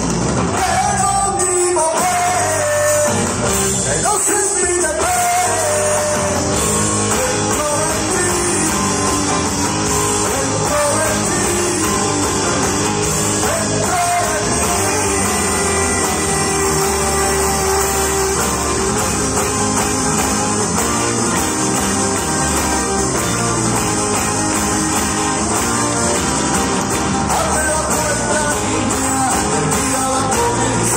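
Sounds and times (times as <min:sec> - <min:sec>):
live rock band: 0:00.0 - 0:30.9
person singing: 0:00.5 - 0:03.3, 0:03.9 - 0:12.6, 0:13.4 - 0:19.0, 0:27.2 - 0:30.9.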